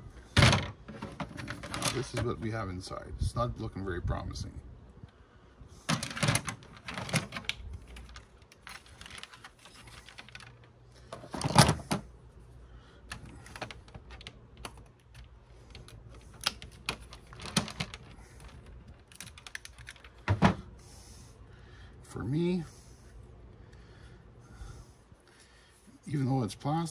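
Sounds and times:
plastic and metal parts clicking: 5.9 - 12.0, 13.1 - 20.3.

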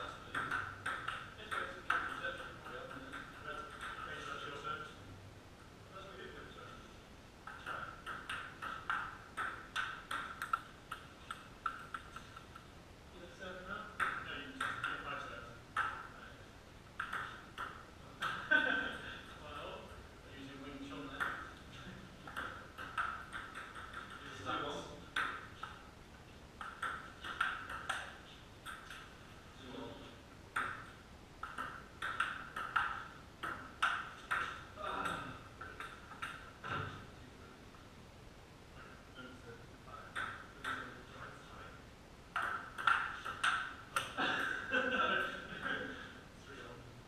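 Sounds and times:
ping-pong ball hitting paddles: 0.0 - 4.6, 7.4 - 12.7, 13.9 - 16.2, 17.0 - 18.6, 21.0 - 25.9, 26.6 - 29.2, 30.5 - 36.9, 40.1 - 41.1, 42.3 - 45.4.

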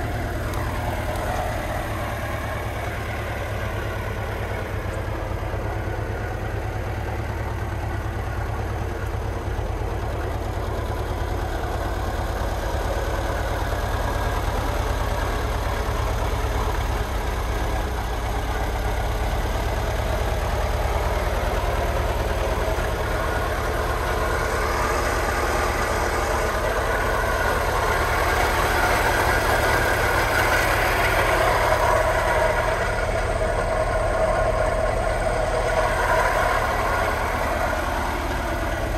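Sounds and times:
van engine idling: 0.0 - 38.9.

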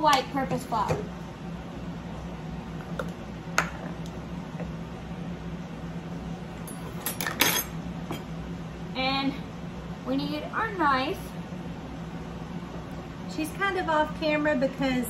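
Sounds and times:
utensils clinking against bowl: 6.7 - 8.2.

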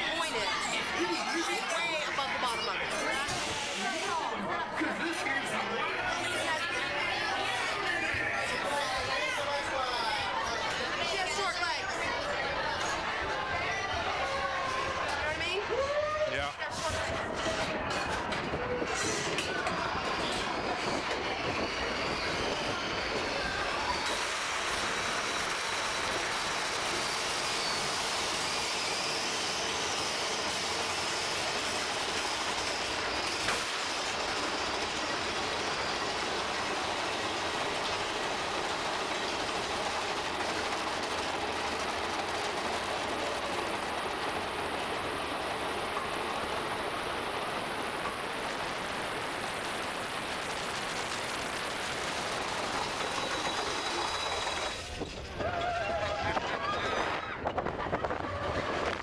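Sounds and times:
roller coaster cars rolling on track: 0.0 - 59.0.

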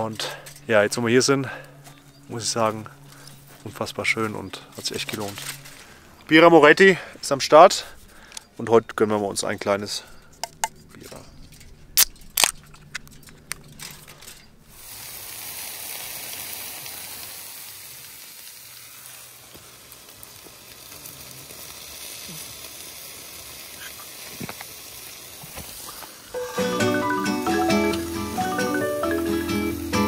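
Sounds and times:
embers cracking: 0.0 - 8.7, 9.3 - 15.3, 18.5 - 26.2
embers sizzling hiss: 0.0 - 30.0.

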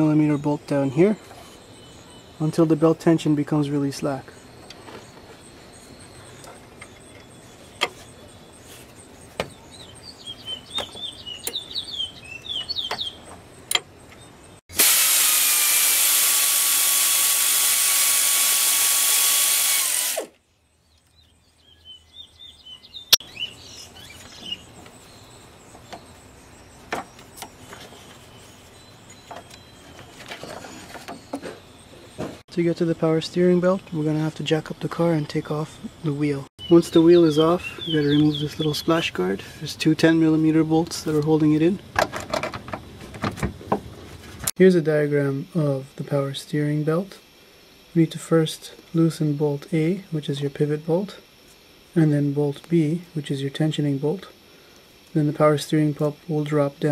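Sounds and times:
birds chirping: 0.0 - 14.7, 20.2 - 41.9
power tool motor whine: 14.7 - 20.4.

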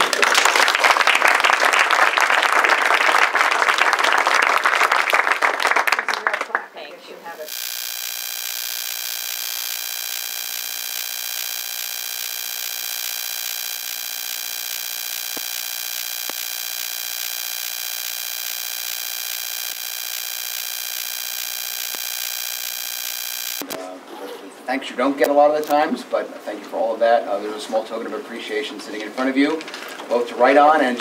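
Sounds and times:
steady electronic buzz: 7.4 - 23.8
faint clicks: 7.5 - 23.8.

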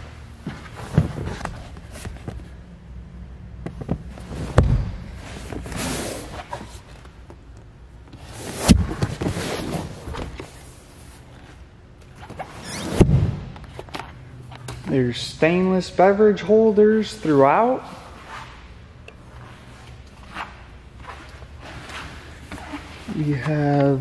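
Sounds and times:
soft rubbing swish: 17.2 - 23.6.

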